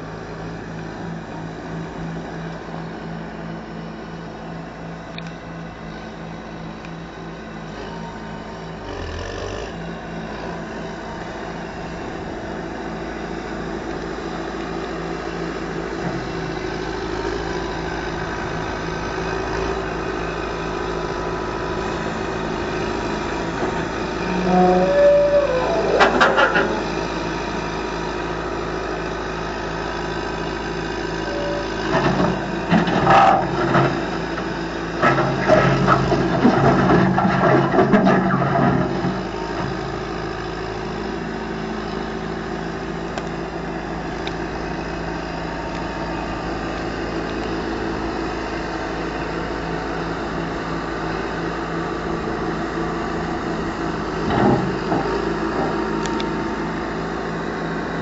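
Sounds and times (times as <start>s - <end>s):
diesel engine running: 0.0s - 58.0s
hydraulic noise: 23.7s - 27.1s
short squealing tones: 24.1s - 27.1s, 31.3s - 31.9s.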